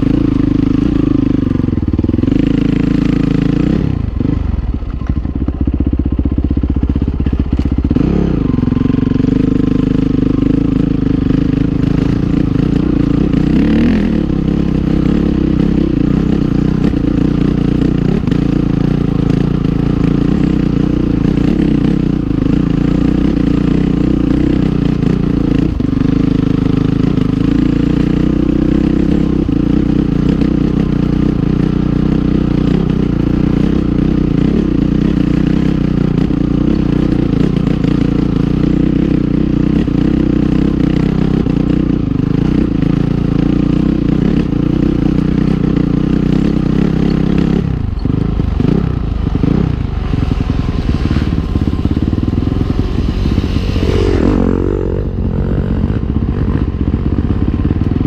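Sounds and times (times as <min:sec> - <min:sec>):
dirt bike engine revving: 0:00.0 - 0:04.7, 0:07.3 - 0:58.0.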